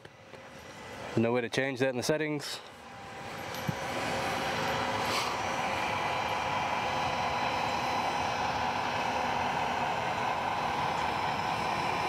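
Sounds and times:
gate actuator motor whine: 2.8 - 12.0.

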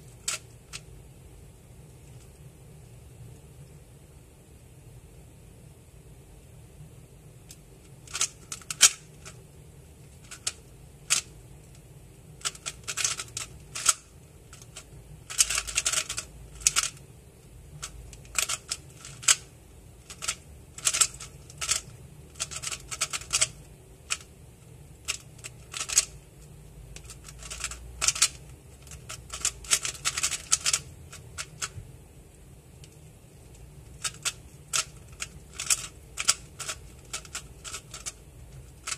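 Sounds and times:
puzzle cube layers clicking: 8.1 - 9.4, 12.4 - 17.0, 27.0 - 31.7, 34.0 - 38.2.

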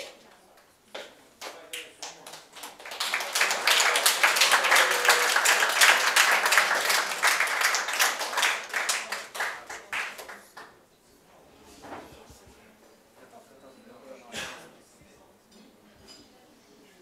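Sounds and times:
people applauding: 1.4 - 10.8.

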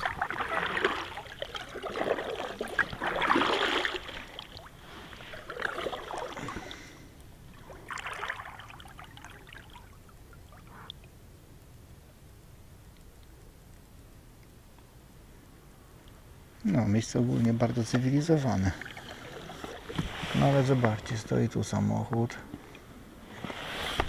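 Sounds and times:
paddle splashing in water: 0.0 - 10.9, 17.9 - 21.0
water running off paddle: 0.0 - 11.0, 17.9 - 21.2.

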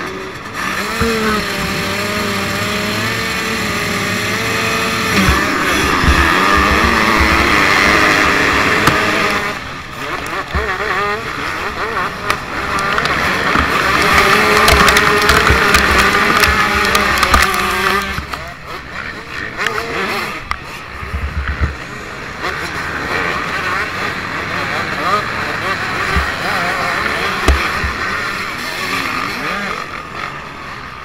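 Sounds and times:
dirt bike engines revving: 0.0 - 31.0.

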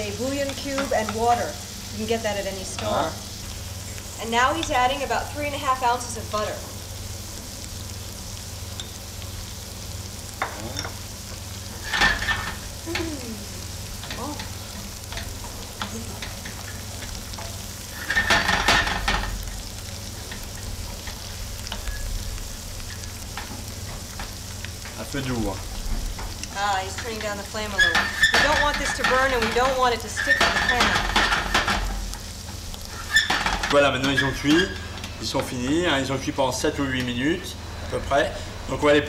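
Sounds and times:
vegetables sizzling in a pan: 0.0 - 39.0
wooden spoon scraping a pan: 15.1 - 19.4, 26.9 - 31.9.

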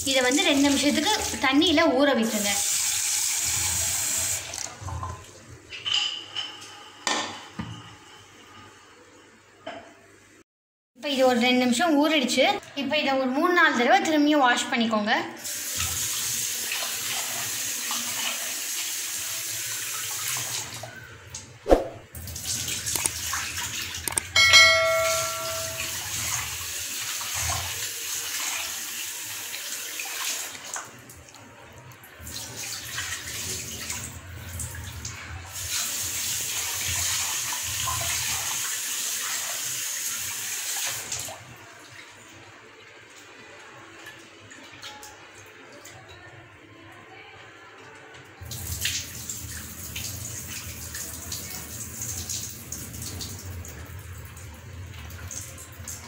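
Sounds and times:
short metallic ring: 24.4 - 26.1.

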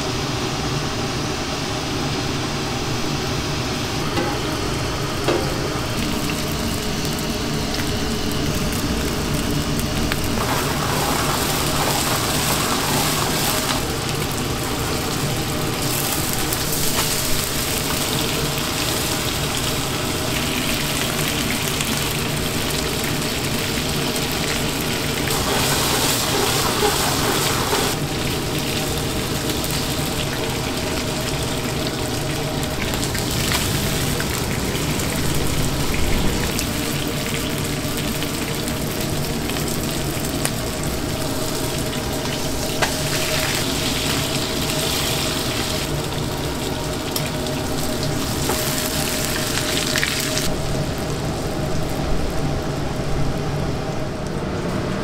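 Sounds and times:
water running: 3.9 - 50.5
food sizzling on a hot pan: 4.2 - 51.6.

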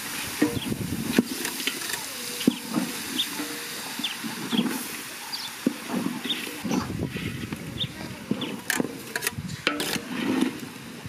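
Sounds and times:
food sizzling in a pot: 0.0 - 6.7.

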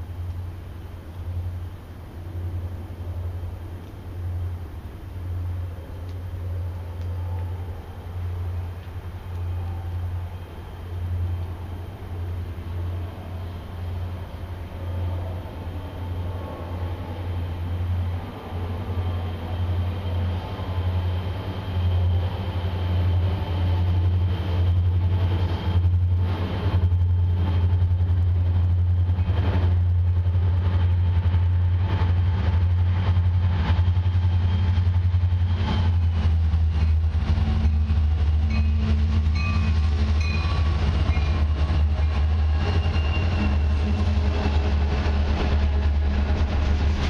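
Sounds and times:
diesel locomotive engine drone: 0.0 - 47.0
train wheels clicking over rail joints: 19.0 - 47.0.

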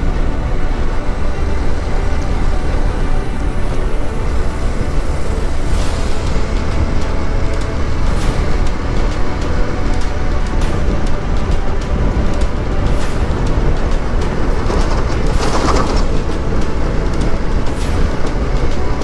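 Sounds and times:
heavy truck: 0.0 - 19.0
wind and road noise: 0.0 - 19.0.

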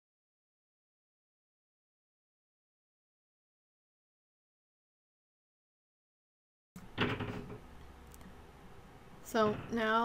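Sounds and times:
low room hum: 6.8 - 10.0.

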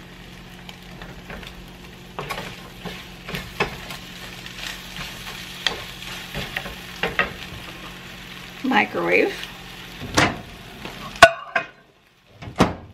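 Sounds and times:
eggs sizzling: 0.0 - 12.9
spatula scraping frying pan: 2.1 - 8.1.

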